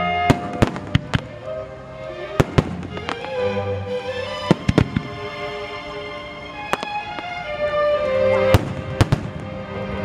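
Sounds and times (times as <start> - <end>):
music: 0.0 - 10.0
firework shells bursting: 0.3 - 1.4, 2.4 - 3.5, 4.4 - 5.3, 6.7 - 7.6.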